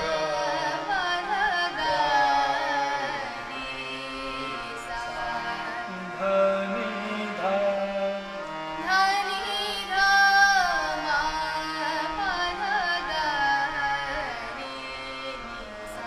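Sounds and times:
harmonium sustained notes: 0:00.0 - 0:16.0
person singing ornamented melody: 0:00.0 - 0:16.0.

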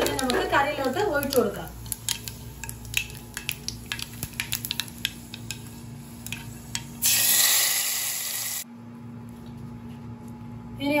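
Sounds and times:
curry hissing and sizzling: 0:00.0 - 0:08.6
seeds crackling in hot oil: 0:00.0 - 0:08.6.

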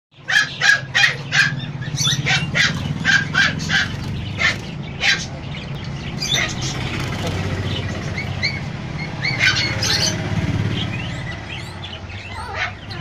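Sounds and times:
small dog yapping: 0:00.3 - 0:01.6, 0:02.2 - 0:05.3, 0:12.3 - 0:12.8.

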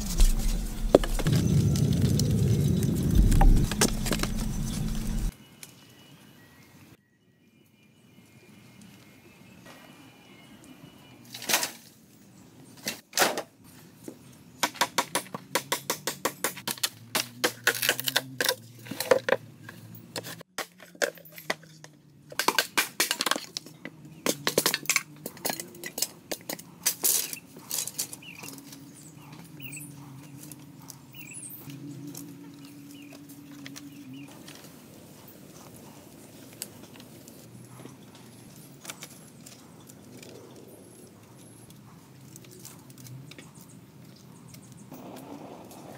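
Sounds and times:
handling noise: 0:00.0 - 0:05.3
machete chopping bamboo: 0:14.6 - 0:18.6, 0:22.3 - 0:23.5.

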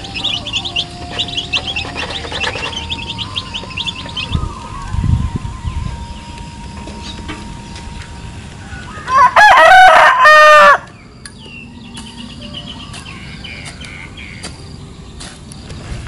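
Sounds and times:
rooster crowing: 0:08.6 - 0:11.0.

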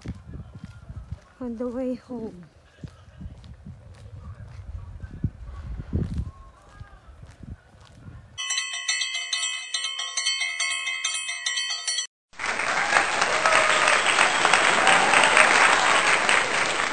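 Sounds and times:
bell-like chime notes: 0:08.4 - 0:12.1
applause: 0:12.4 - 0:16.9.

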